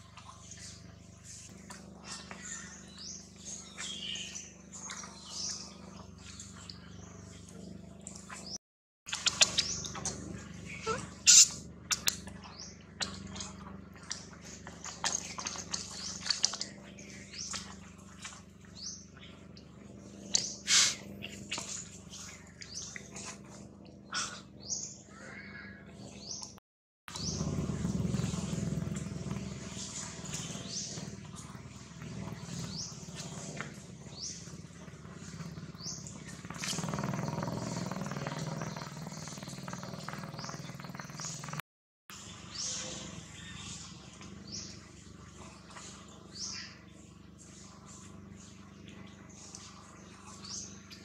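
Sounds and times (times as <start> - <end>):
low steady hum: 0.0 - 26.5, 42.1 - 51.0
animal chirps and squeaks: 8.4 - 12.1.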